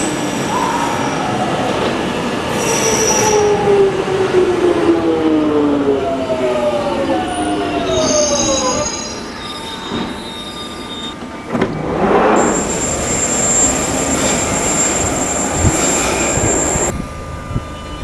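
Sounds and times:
train drive whining down: 0.0s - 18.0s
thin high brake squeals: 2.5s - 3.5s, 7.9s - 11.3s, 12.4s - 16.9s
steady high-pitched whine: 12.0s - 18.0s.

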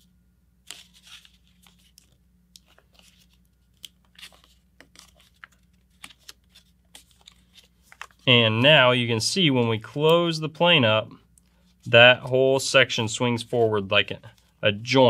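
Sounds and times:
paper rustling and crackling: 0.6s - 8.6s.

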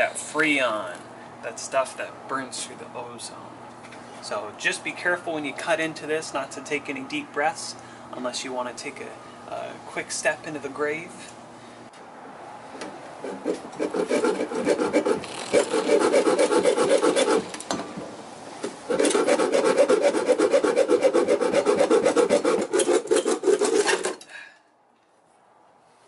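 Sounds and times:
hacksaw sawing metal tubing: 13.2s - 17.5s, 18.9s - 24.3s.

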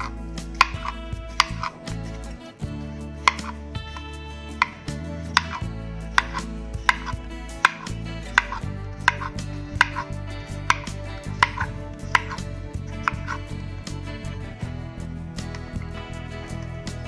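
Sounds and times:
knife tapping on wooden board: 0.0s - 1.7s, 3.2s - 12.4s, 13.0s - 13.4s.

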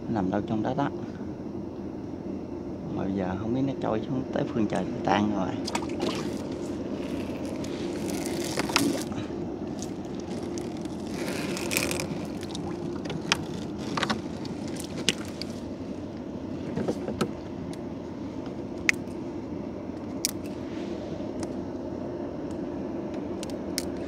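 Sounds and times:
small boat engine running: 5.0s - 24.0s.

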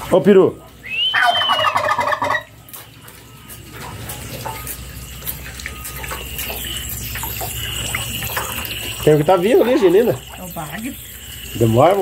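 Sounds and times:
turkey gobbling: 0.6s - 3.6s.

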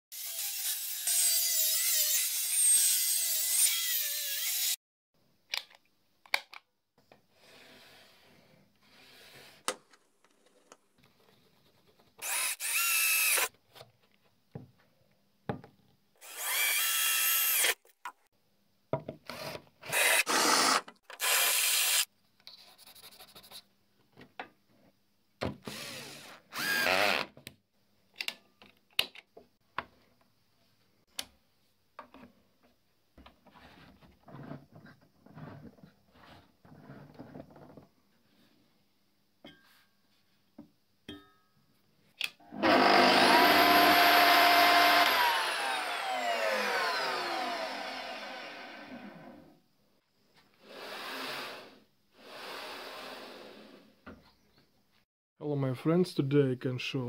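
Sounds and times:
cordless drill boring metal: 0.2s - 4.8s, 12.2s - 13.5s, 16.2s - 17.8s, 19.3s - 22.1s, 25.7s - 27.2s, 42.5s - 49.4s
clicks and handling noises: 5.5s - 6.7s
table saw cutting wood: 12.2s - 13.5s, 19.9s - 22.1s, 42.5s - 49.5s.

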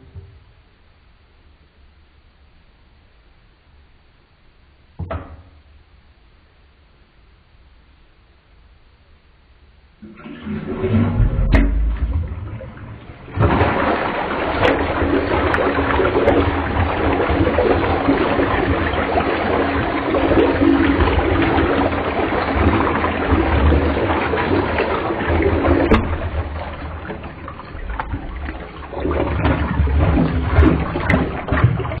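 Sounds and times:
toilet flushing: 10.0s - 32.0s.

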